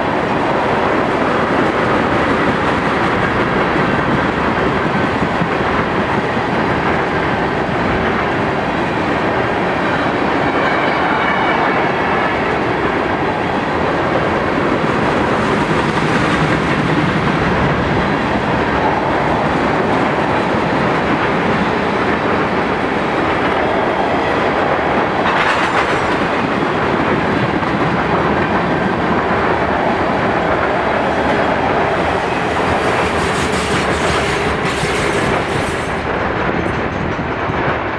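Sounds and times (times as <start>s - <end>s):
freight train wheels on rails: 0.0s - 37.9s.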